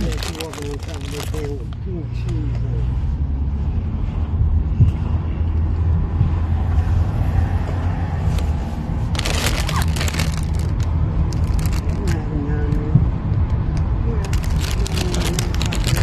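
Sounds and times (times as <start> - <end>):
plastic snack bag crinkling: 0.0 - 1.6, 9.1 - 12.2, 14.2 - 16.0
car interior low rumble: 0.0 - 16.0.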